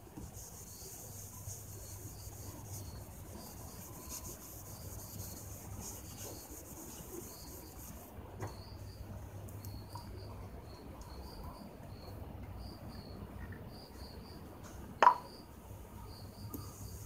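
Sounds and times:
towel rubbing plastic lens: 0.2 - 8.1.

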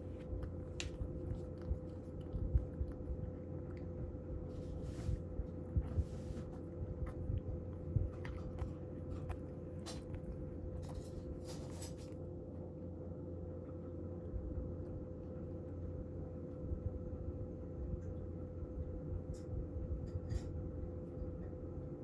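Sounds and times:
cat crunching dry kibble: 0.0 - 12.6
fan heater humming: 0.0 - 22.0.

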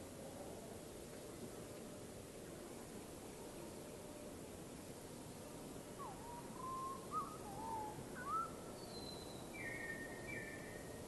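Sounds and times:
background hiss: 0.0 - 11.0
bird whistling: 6.0 - 10.6.

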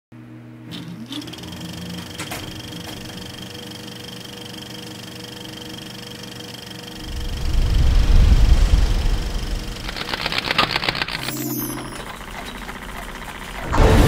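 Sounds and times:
mechanical whirring drone: 0.6 - 14.0
short rising tone: 7.0 - 10.0
sharp clicks: 9.7 - 13.6.

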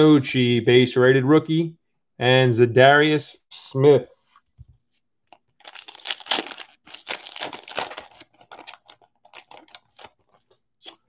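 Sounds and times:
foil wrapper tearing and crinkling: 5.6 - 10.6.

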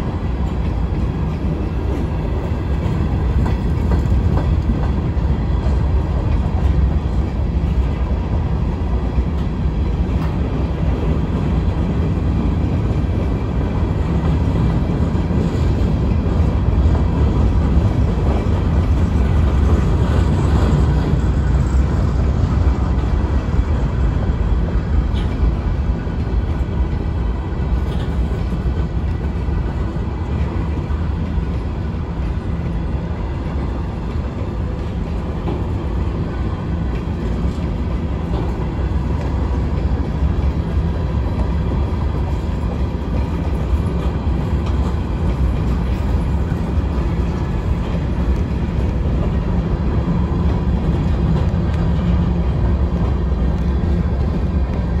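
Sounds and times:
freight train wheels rumbling on rails: 0.0 - 55.0.

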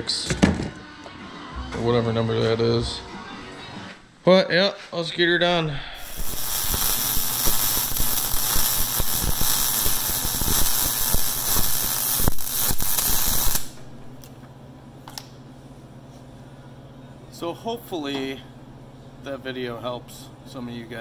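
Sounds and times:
arc welding crackling: 6.0 - 14.3.

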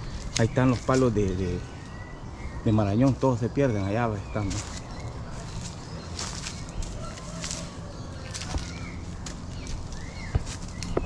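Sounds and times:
brushing past undergrowth: 0.0 - 2.0, 4.2 - 11.0
footsteps crunching dry leaves: 0.0 - 2.0, 4.3 - 11.0
small birds chirping: 0.0 - 11.0.

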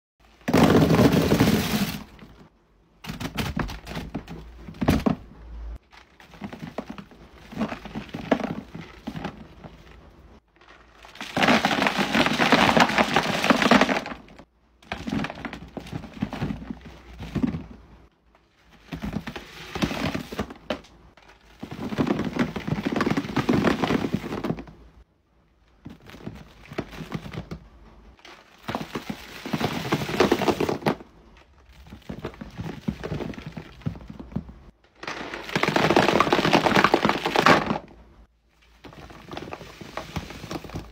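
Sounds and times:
candies clattering into plastic bin: 0.2 - 2.4, 5.9 - 17.8, 18.7 - 24.8, 28.2 - 37.9, 38.7 - 40.9.

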